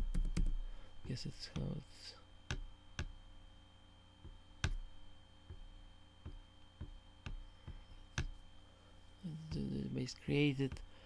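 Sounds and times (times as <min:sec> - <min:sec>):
faint steady hum: 0:00.0 - 0:11.0
computer mouse clicking: 0:04.6 - 0:04.8.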